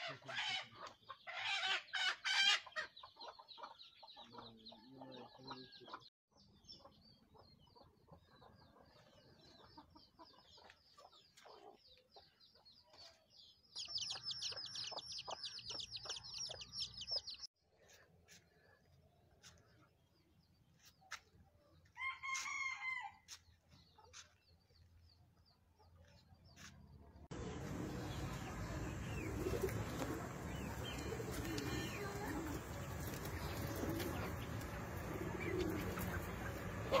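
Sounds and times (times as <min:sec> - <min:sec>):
chickens clucking: 0:00.0 - 0:17.5, 0:27.3 - 0:37.0
chicks peeping: 0:01.9 - 0:17.5, 0:27.4 - 0:37.0.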